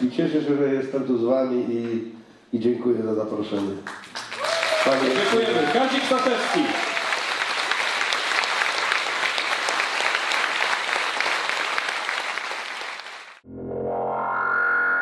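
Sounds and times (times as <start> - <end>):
audience applauding: 3.6 - 13.4.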